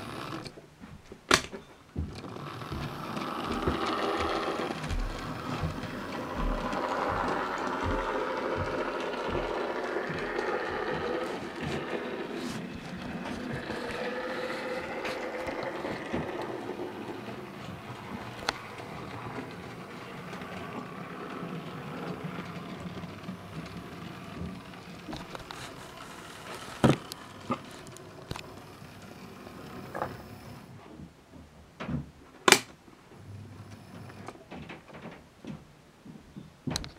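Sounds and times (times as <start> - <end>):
model train motor whirring: 0.0 - 0.5, 2.2 - 30.7
wheels running on track: 0.0 - 0.5, 2.0 - 30.7.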